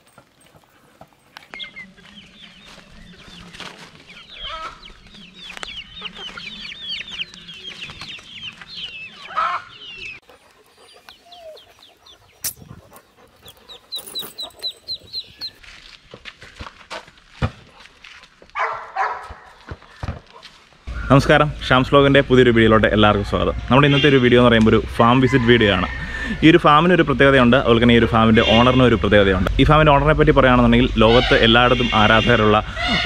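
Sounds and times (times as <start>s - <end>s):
baby chicks peeping: 1.4s - 15.6s.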